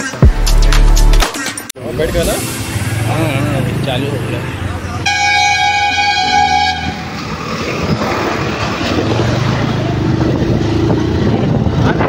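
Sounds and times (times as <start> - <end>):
vehicle horn blaring: 5.0 - 7.4
motorcycle engine running: 7.3 - 12.0.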